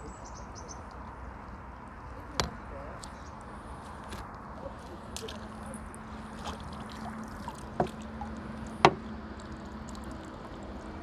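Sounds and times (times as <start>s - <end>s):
steady low hum: 0.0s - 11.0s
water sloshing and dripping: 0.8s - 11.0s
sharp knocks: 8.8s - 9.0s.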